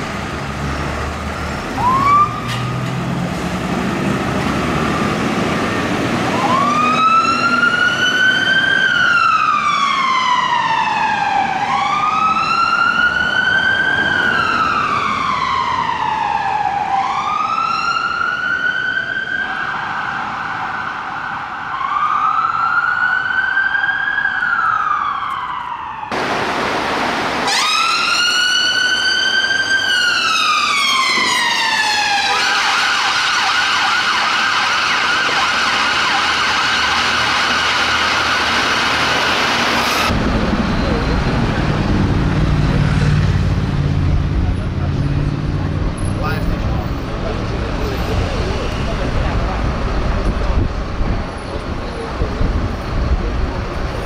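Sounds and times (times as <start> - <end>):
truck engine pulling away: 0.0 - 9.1, 26.1 - 54.0
fire engine siren wailing: 0.0 - 54.0.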